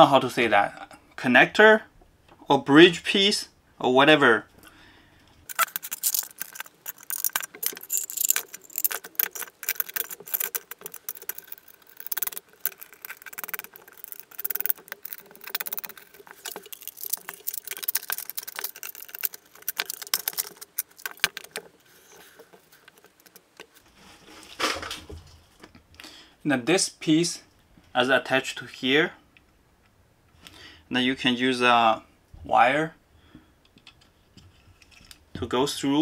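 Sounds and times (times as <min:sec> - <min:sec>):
metal screws and nuts clinking: 0:05.5 - 0:23.8.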